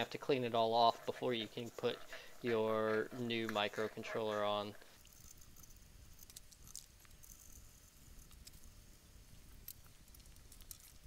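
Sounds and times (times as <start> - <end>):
pick scraping circuit board: 0.0 - 5.0.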